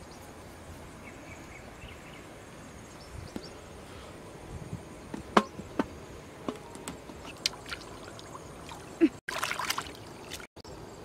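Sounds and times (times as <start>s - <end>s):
hands splashing water in bowl: 7.3s - 10.5s.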